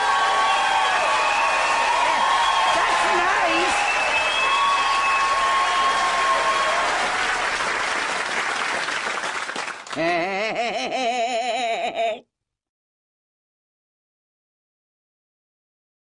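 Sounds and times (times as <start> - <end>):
studio audience applauding: 0.0 - 10.5.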